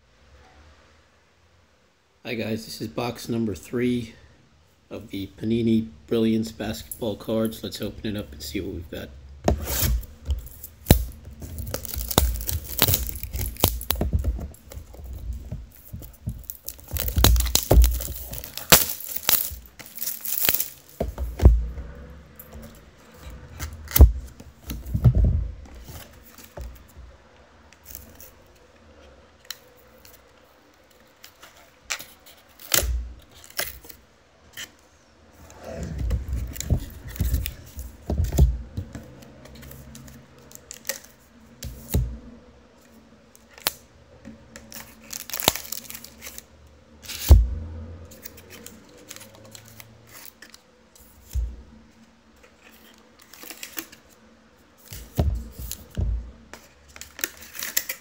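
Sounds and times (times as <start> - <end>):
shrink wrap crackling: 9.6 - 26.9, 44.5 - 47.3, 48.1 - 58.0.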